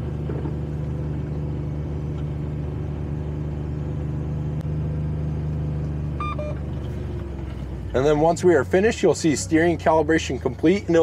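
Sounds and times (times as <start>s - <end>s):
utility vehicle engine running: 0.0s - 11.0s.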